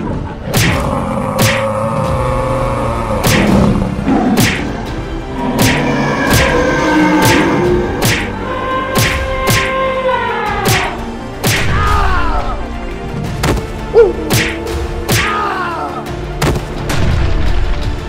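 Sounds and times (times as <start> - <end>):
background music: 0.0 - 18.0
cartoon hits and thuds: 0.5 - 1.7, 8.0 - 8.3.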